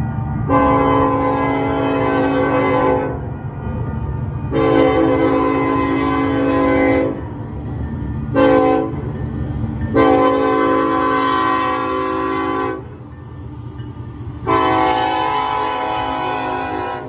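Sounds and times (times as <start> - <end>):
low locomotive rumble: 0.0 - 17.0
locomotive air horn blasts: 0.5 - 3.2, 4.5 - 7.3, 8.3 - 9.0, 9.9 - 12.9, 14.4 - 17.0.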